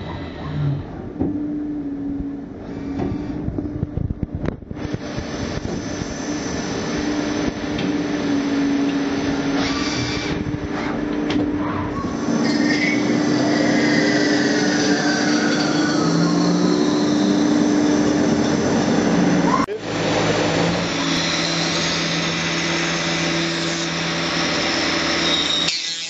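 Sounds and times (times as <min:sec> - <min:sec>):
high whine of metal turning: 0:00.0 - 0:26.0
lathe motor hum and whir: 0:00.0 - 0:26.0.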